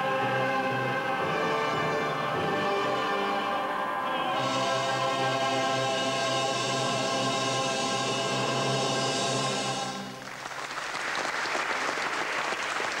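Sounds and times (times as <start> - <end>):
choir and orchestra chord: 0.0 - 10.2
audience applause: 10.1 - 13.0.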